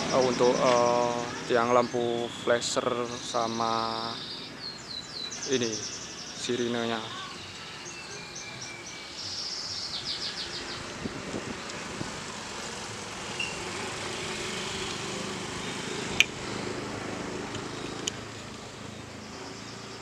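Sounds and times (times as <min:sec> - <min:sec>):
bird chirping: 0:00.0 - 0:16.9, 0:17.5 - 0:20.0
small motorbike engine: 0:10.1 - 0:20.0.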